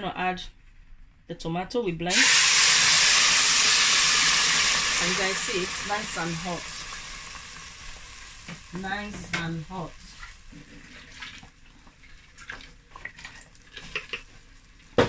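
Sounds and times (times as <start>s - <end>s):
tomato sizzling in pot: 2.1s - 15.0s
small crackles and pops: 10.2s - 15.0s.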